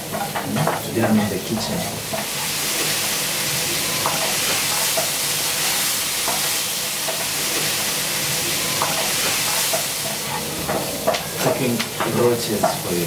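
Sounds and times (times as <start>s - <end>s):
frying sizzle in oil: 0.0s - 13.0s.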